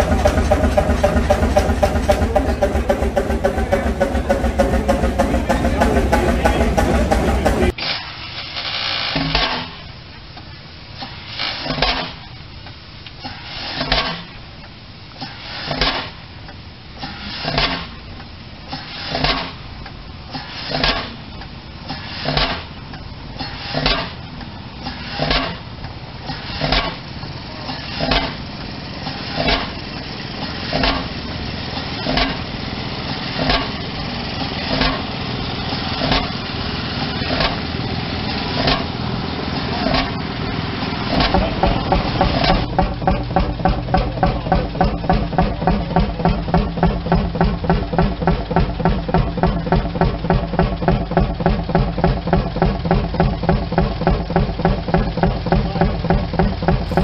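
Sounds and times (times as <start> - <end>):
low engine running sound: 0.0 - 7.8, 9.2 - 57.0
stationary engine exhaust bangs: 0.0 - 8.1, 9.0 - 57.0.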